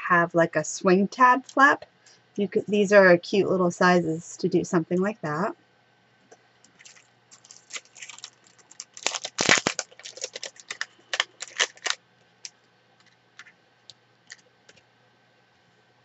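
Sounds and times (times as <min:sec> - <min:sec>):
plastic packet crinkling: 0:06.7 - 0:14.8.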